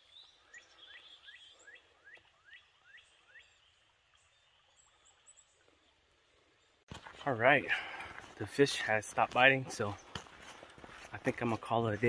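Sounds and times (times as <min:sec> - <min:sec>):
faint high bird calls: 0:00.0 - 0:05.9.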